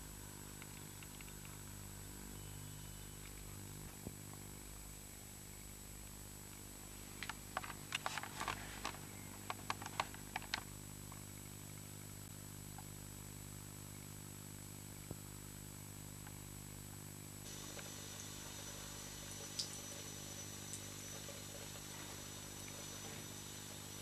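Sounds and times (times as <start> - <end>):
low electrical hum: 0.0 - 24.0
small clicks and taps: 7.2 - 11.2.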